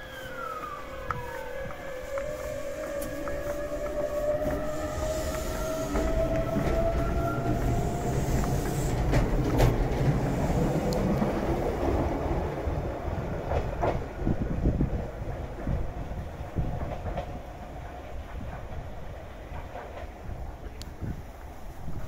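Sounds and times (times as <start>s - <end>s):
electric train motors whining: 0.0s - 11.9s
train wheels rumbling: 0.0s - 22.0s
wheels clacking on rails: 0.3s - 22.0s.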